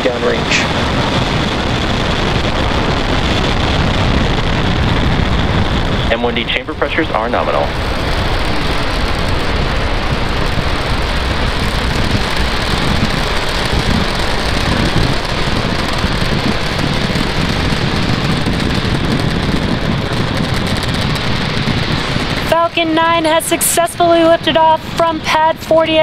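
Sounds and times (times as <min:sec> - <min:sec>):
rocket engines rumbling: 0:00.0 - 0:26.0.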